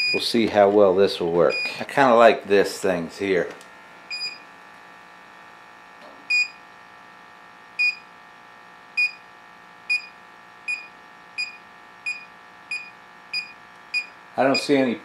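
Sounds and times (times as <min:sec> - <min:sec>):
gas leak detector beeping: 0:00.0 - 0:00.3, 0:01.5 - 0:01.8, 0:04.1 - 0:04.5, 0:06.3 - 0:06.6, 0:07.8 - 0:08.1, 0:08.9 - 0:14.8.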